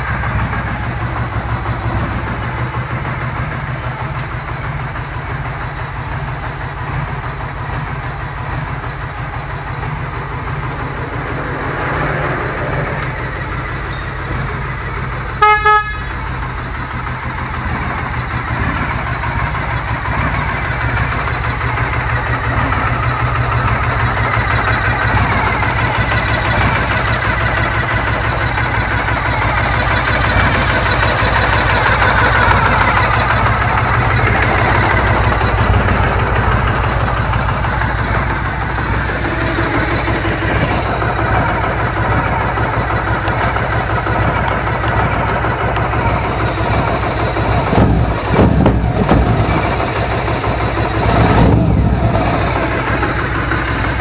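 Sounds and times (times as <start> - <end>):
motorcycle engine running: 0.0 - 54.0
motorcycle horn: 15.2 - 16.5.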